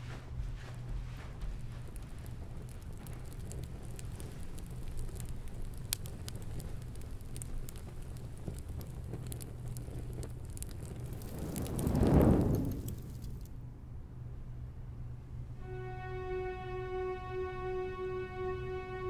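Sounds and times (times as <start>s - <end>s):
small fire crackling: 0.0s - 13.7s
steady low hum: 0.0s - 19.0s
low rush: 9.7s - 13.5s.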